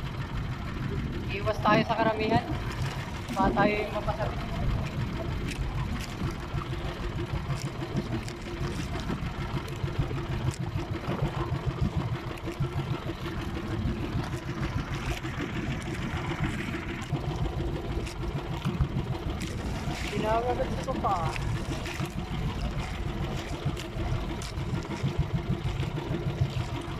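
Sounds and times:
boat engine running: 0:00.0 - 0:26.9.

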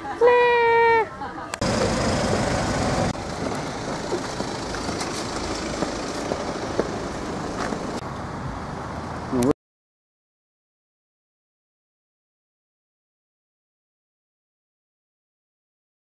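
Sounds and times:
outdoor background rumble: 0:00.9 - 0:09.5.

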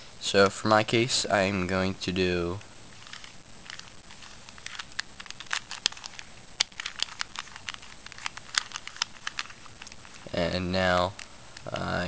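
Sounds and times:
puzzle cube clicking: 0:03.0 - 0:10.3.

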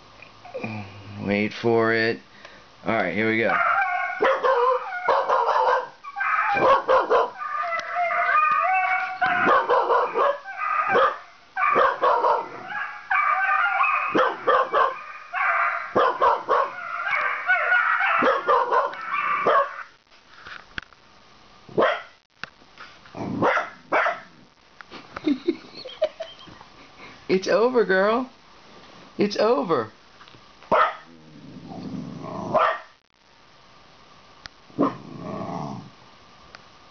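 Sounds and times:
dogs howling through laptop speaker: 0:03.4 - 0:20.0
puppy barking and yipping: 0:03.5 - 0:19.9, 0:21.8 - 0:22.1, 0:30.7 - 0:31.1, 0:32.6 - 0:32.9.

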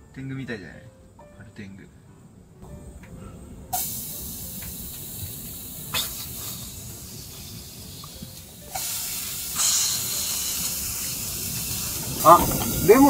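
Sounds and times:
meat sizzling in a pot: 0:03.8 - 0:13.0.

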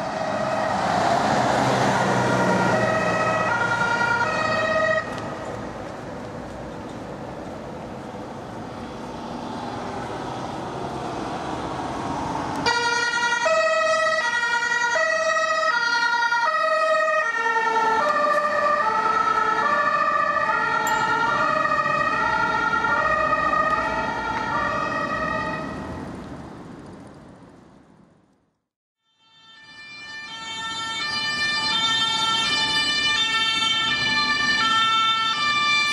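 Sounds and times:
vehicle engine and tyre noise: 0:00.0 - 0:28.7, 0:29.9 - 0:35.9
two-tone siren: 0:02.1 - 0:05.2, 0:12.7 - 0:25.9, 0:29.0 - 0:35.9.

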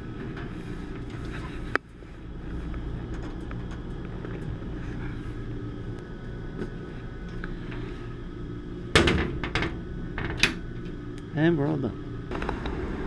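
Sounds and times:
equipment humming: 0:00.0 - 0:13.0.

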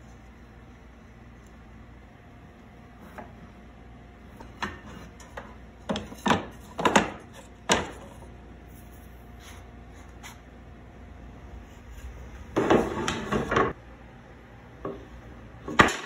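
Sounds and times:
wooden boards knocking and clattering: 0:12.6 - 0:13.8.

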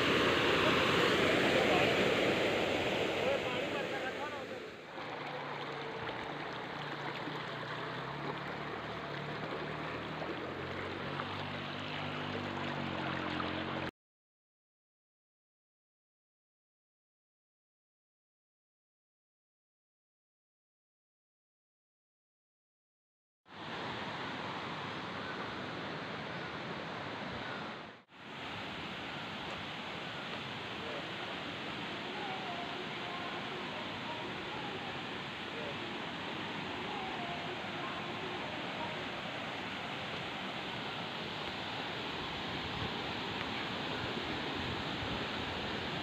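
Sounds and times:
stream rushing over stones: 0:00.0 - 0:13.9, 0:23.5 - 0:46.0.

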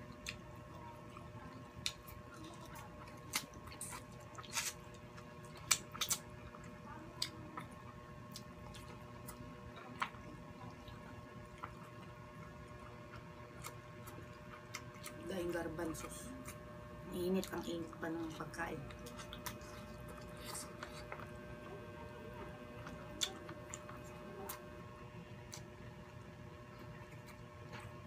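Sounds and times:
faint steady hum: 0:00.0 - 0:28.0
wet chewing smacks: 0:01.1 - 0:15.2.

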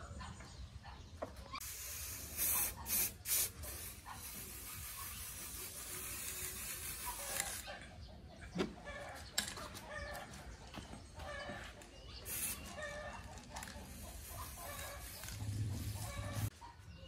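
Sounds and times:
chickens clucking: 0:07.2 - 0:17.0.

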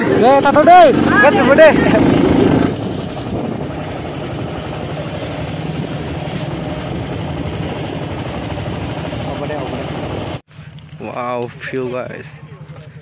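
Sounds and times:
wind on microphone: 0:00.0 - 0:09.3
motorcycle engine cruising: 0:00.0 - 0:13.0
road noise: 0:00.0 - 0:13.0.

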